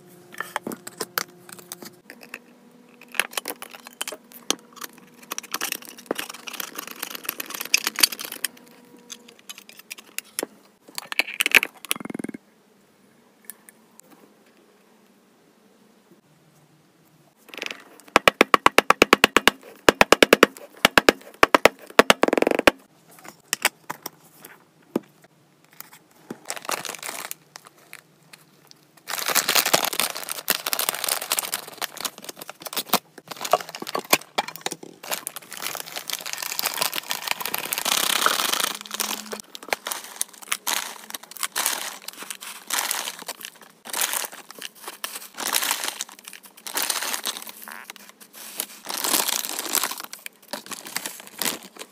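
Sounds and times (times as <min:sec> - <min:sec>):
foil bag crinkling: 0:03.1 - 0:10.1, 0:26.4 - 0:28.0, 0:28.6 - 0:51.9
dried flowers rustling and crackling: 0:35.0 - 0:51.9.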